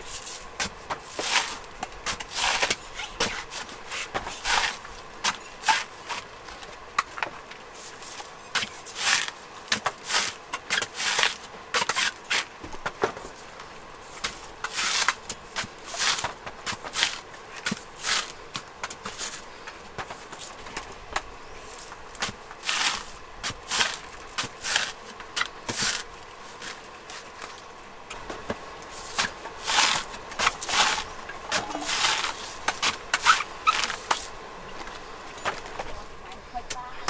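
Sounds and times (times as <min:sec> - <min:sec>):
coconut husk scraping on blade: 0:00.0 - 0:06.3, 0:07.8 - 0:12.6, 0:14.0 - 0:19.5, 0:21.7 - 0:27.5, 0:28.8 - 0:34.4.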